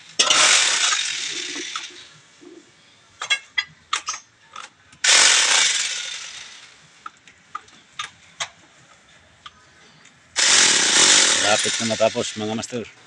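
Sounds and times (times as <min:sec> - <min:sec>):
paint sprayer hissing: 0:10.4 - 0:12.6.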